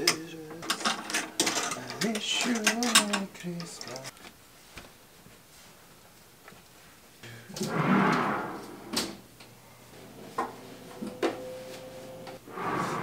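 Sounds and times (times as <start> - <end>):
sliding scrape: 7.6 - 8.9, 12.4 - 13.0.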